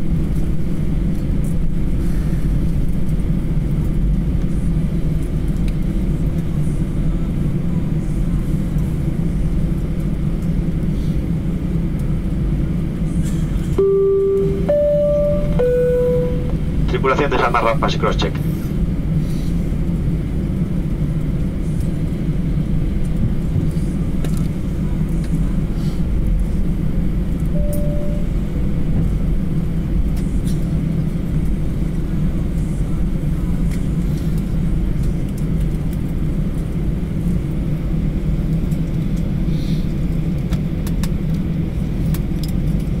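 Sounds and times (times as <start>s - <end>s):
aircraft engines idling: 0.0s - 43.0s
cabin air running: 0.0s - 43.0s
single tone: 13.8s - 16.7s, 27.5s - 28.6s.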